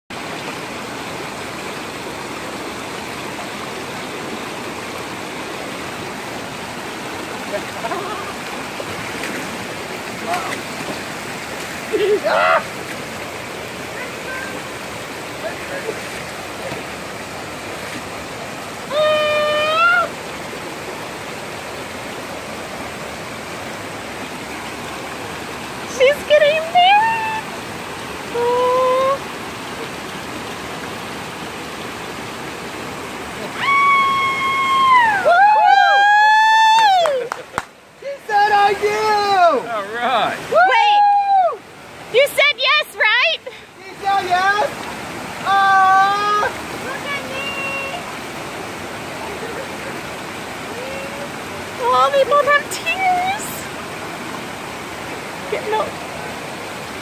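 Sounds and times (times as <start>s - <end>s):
rocky creek flowing: 0.1s - 57.0s
small waterfall rushing: 0.1s - 57.0s
person crying out high-pitched: 12.0s - 12.7s, 18.9s - 20.1s, 28.3s - 29.2s.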